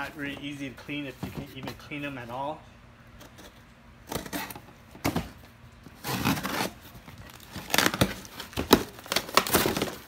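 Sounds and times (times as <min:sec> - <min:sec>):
packaging rustling and tearing: 0:06.0 - 0:10.0.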